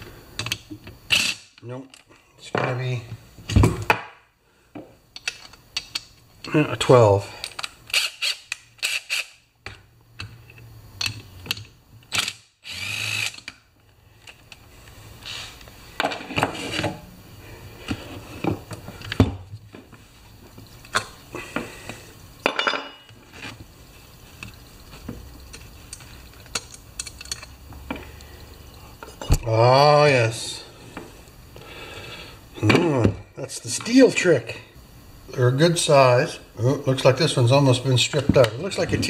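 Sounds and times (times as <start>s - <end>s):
cordless drill whirring: 12.2s - 13.4s
metal tools clicking and knocking: 25.5s - 27.6s.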